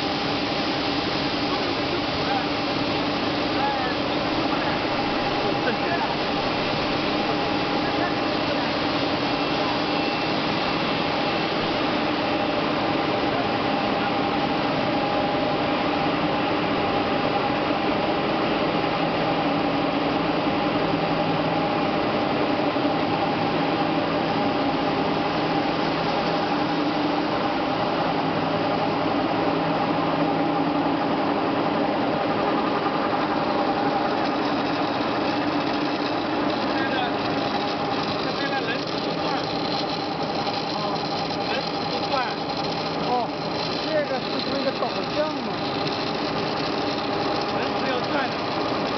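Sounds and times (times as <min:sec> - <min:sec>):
humming machine drives: 0:20.5 - 0:48.9.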